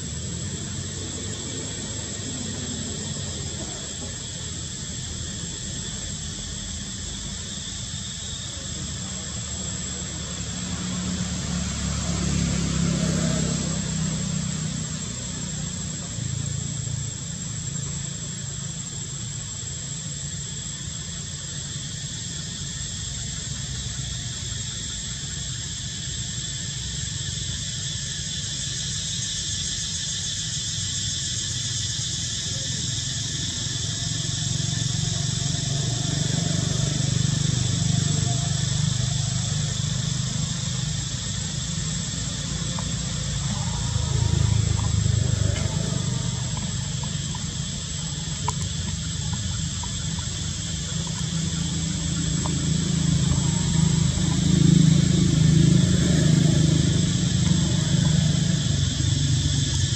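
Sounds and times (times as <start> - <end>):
passing vehicle rumble: 0.0 - 7.0, 8.5 - 18.2, 32.4 - 59.9
insects chirring: 0.0 - 59.9.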